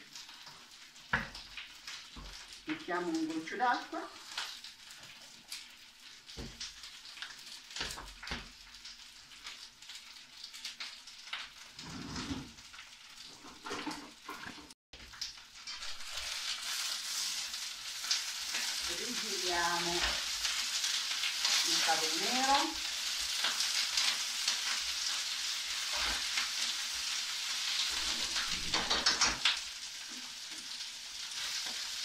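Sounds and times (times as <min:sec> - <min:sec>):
greens sizzling in a frying pan: 0:00.0 - 0:32.0
kitchen utensils clicking and knocking: 0:28.0 - 0:29.5.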